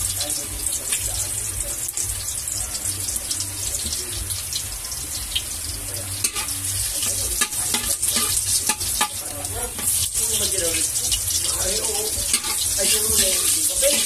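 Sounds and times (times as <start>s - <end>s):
food sizzling in a pan: 0.0s - 14.0s
utensil clinking while stirring: 12.2s - 14.0s.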